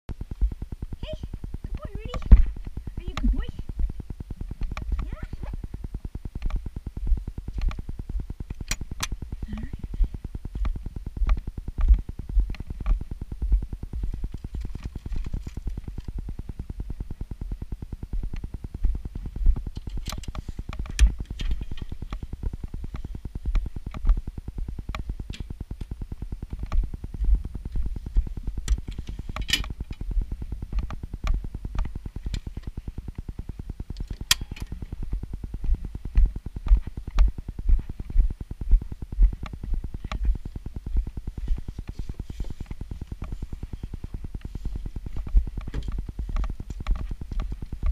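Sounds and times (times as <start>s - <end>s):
sharp clicks: 0.6s - 6.8s, 7.4s - 9.8s, 18.3s - 24.2s, 28.1s - 35.1s.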